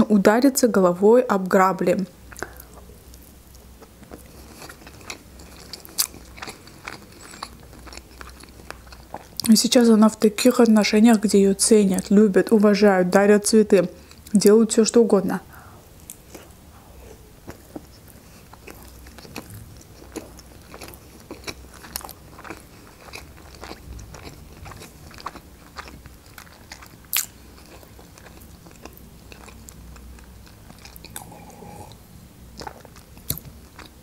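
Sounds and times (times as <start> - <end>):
wet chewing mouth clicks: 30.7 - 32.0.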